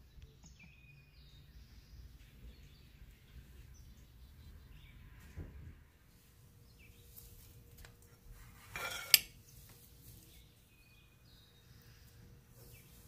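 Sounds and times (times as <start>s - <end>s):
food scraping on plate: 8.4s - 9.8s
utensil clinking against plate: 8.7s - 9.4s.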